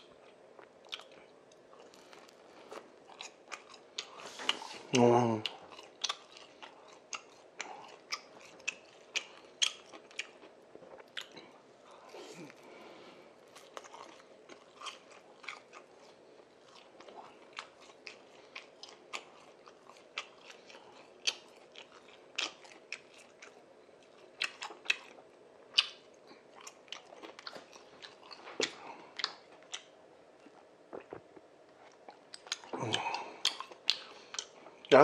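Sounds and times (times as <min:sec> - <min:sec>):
man chewing food: 0:00.0 - 0:35.0
crunches and mouth clicks: 0:26.7 - 0:34.8.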